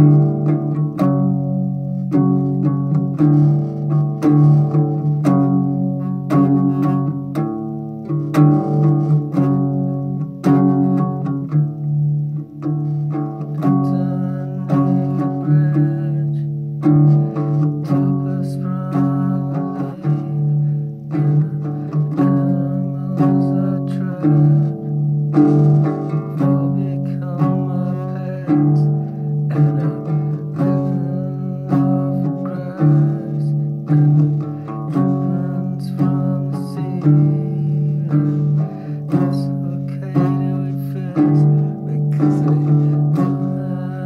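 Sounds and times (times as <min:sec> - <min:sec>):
acoustic guitar chords: 0:00.0 - 0:44.0.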